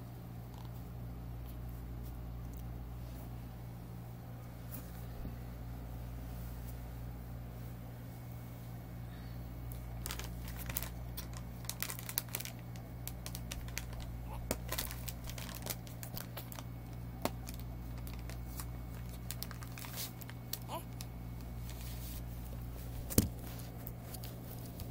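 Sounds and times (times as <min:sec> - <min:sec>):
steady low hum: 0:00.0 - 0:24.9
handling crinkles and clicks: 0:09.7 - 0:24.9.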